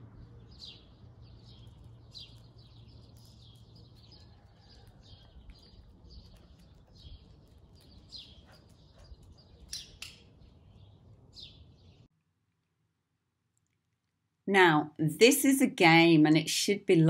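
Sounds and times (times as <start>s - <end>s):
small birds chirping: 0.0s - 12.1s.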